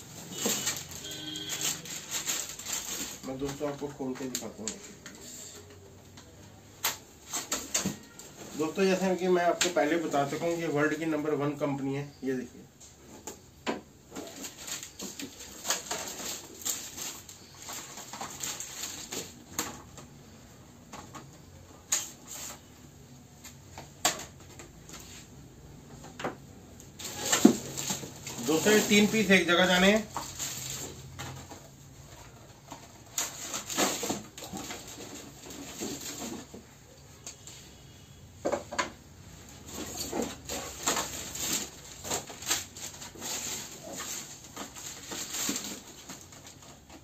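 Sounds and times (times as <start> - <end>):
packaging rustling: 0.0 - 5.0, 14.0 - 20.4, 26.7 - 36.9, 39.4 - 47.0
wooden tools clicking and knocking: 0.0 - 10.6, 12.8 - 22.6, 23.4 - 25.2, 25.8 - 37.4, 38.4 - 47.0.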